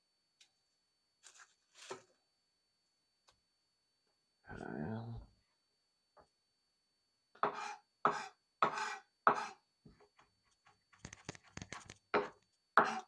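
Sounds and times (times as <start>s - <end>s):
knife cutting on cutting board: 7.4s - 9.6s.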